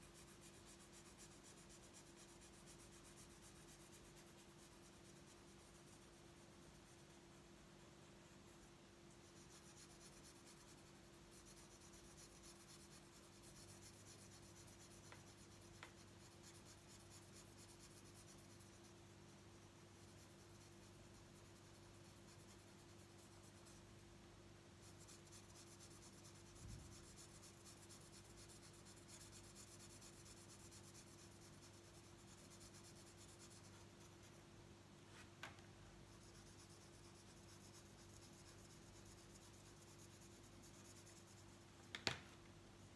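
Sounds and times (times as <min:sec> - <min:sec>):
marker scratching on paper: 0:36.1 - 0:41.6.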